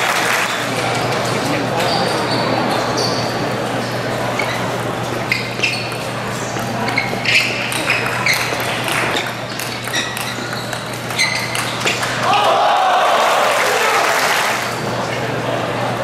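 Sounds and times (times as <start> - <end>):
ping pong ball hitting paddles: 5.6 - 12.3
ball bouncing on table: 7.3 - 12.2
crowd murmuring: 12.0 - 16.0.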